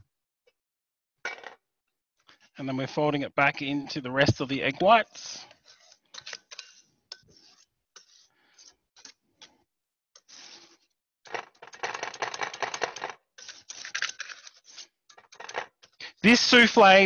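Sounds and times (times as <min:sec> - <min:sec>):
spatula scraping metal bowl: 0:05.2 - 0:09.6, 0:10.2 - 0:11.0.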